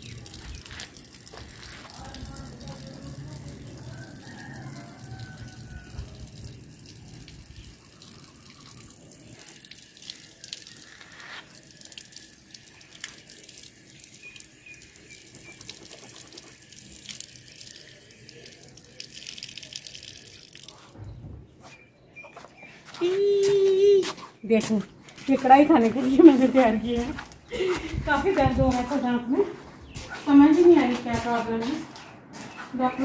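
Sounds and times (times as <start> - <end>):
tap water splashing on concrete: 0.0 - 21.0
water drips: 0.0 - 21.0.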